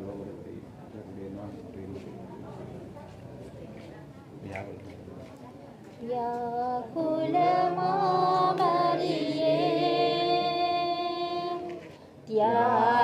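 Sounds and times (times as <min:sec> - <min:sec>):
person singing a hymn unaccompanied: 0:06.0 - 0:13.0.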